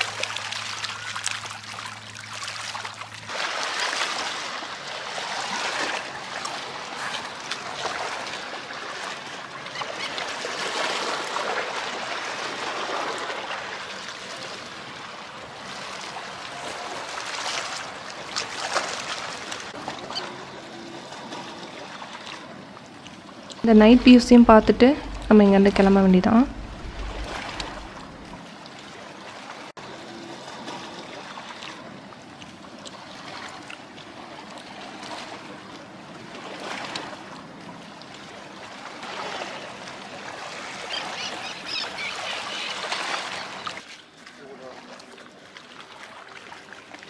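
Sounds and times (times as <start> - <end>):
small waves lapping over stones: 0.0 - 20.5.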